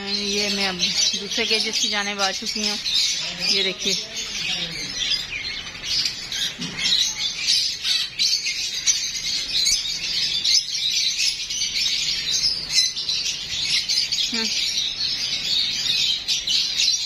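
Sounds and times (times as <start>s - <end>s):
parrots chattering and squawking: 0.0s - 17.0s.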